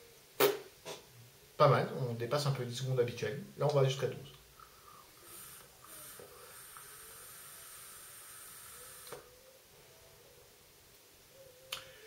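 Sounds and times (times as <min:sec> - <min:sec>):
vape hissing: 0:04.6 - 0:09.4.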